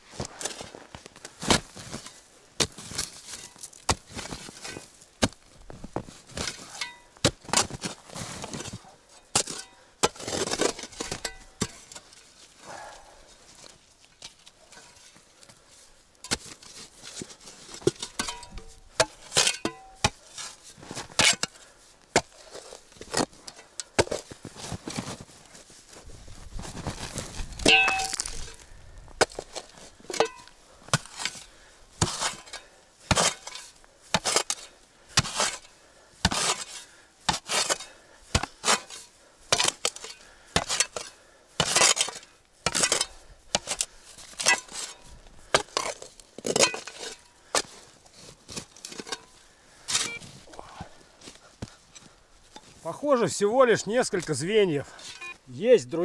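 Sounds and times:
blade scraping through earth: 0.1 - 5.4, 6.0 - 50.6
spade chopping frozen soil: 1.3 - 12.1, 16.2 - 25.3, 27.1 - 49.3.

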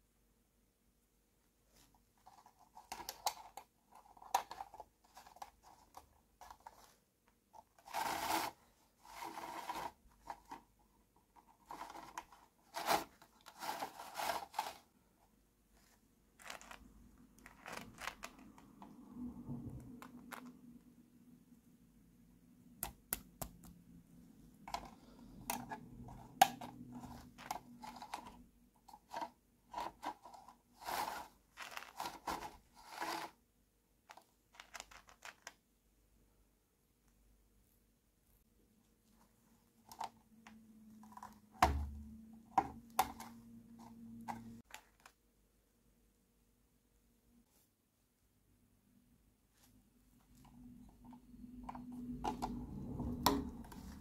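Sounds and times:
plastic rubbing: 1.7 - 15.0, 15.7 - 19.0, 24.6 - 33.4
plastic parts clicking and scraping: 2.2 - 14.9, 16.4 - 19.0, 19.8 - 20.7, 24.6 - 33.4, 34.0 - 35.6, 39.8 - 45.2.

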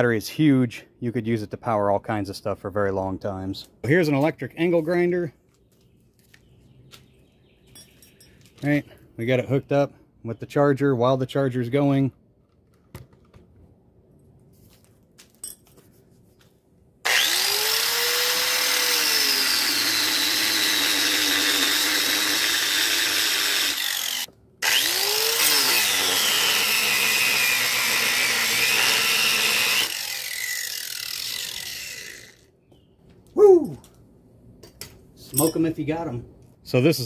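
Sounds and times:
angle grinder cutting wood: 17.0 - 32.5.

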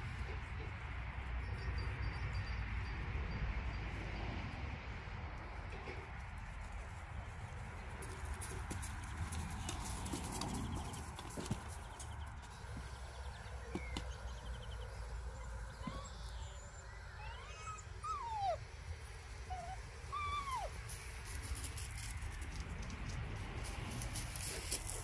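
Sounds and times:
puppies whining: 15.3 - 21.0.

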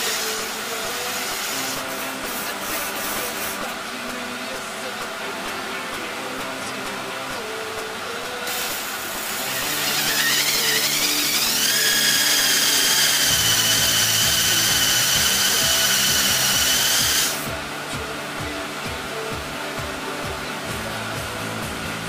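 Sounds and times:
hiss: 0.0 - 3.7, 8.4 - 17.5
background music: 0.0 - 22.0
electric motor whine: 8.5 - 17.5.

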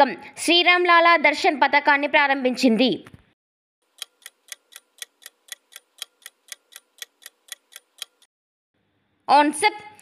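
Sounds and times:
clock ticking: 3.9 - 8.3.

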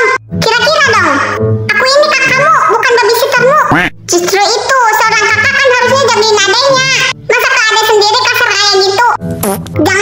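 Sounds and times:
high-pitched cartoon voices: 0.0 - 8.0
background music: 0.0 - 10.0.

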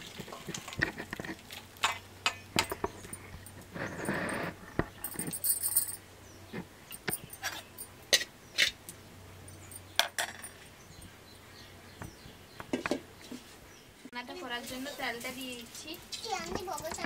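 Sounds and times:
metal spoon clinking on steel bowls: 1.8 - 4.4, 5.0 - 6.0, 6.9 - 8.8, 9.4 - 11.0.

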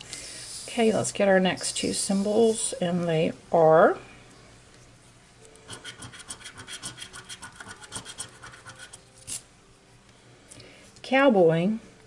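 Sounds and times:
lottery ticket being scratched: 5.6 - 9.4.

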